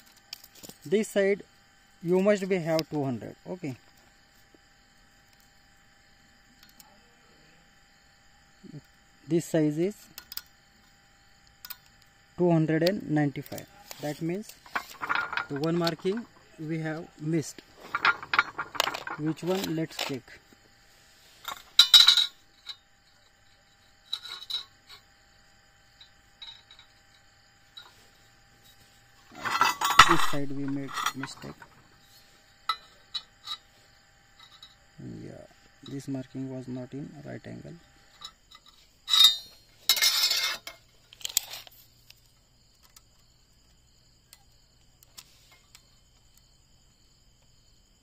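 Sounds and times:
metal tools clattering on steel: 13.3 - 20.5, 21.4 - 25.1, 26.0 - 34.9, 38.0 - 41.7.

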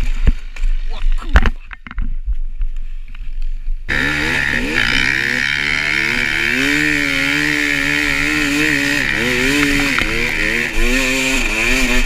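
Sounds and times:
dirt bike engine revving: 3.9 - 12.0.

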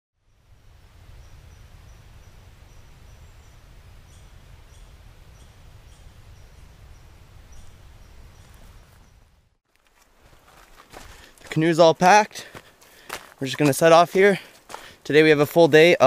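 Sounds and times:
low wind rumble on microphone: 0.2 - 9.6.

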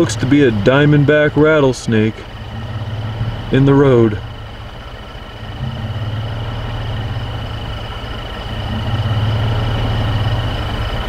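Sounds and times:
truck engine idling: 0.0 - 11.0
high-pitched tone: 2.4 - 10.7.

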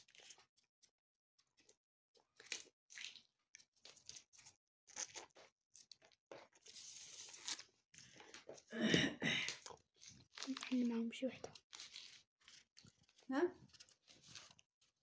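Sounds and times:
pods rustling: 9.4 - 15.0.

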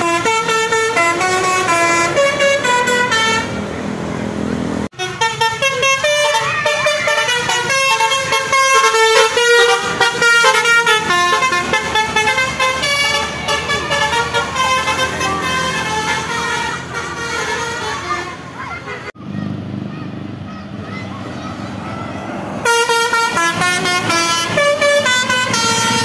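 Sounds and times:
musical air horn melody: 0.0 - 3.6, 4.9 - 18.4, 22.6 - 26.0.

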